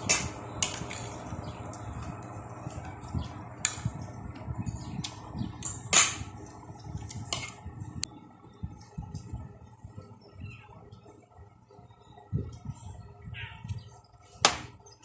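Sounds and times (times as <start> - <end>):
low room rumble: 0.0 - 15.0
tableware clicks and scrapes: 7.2 - 7.6.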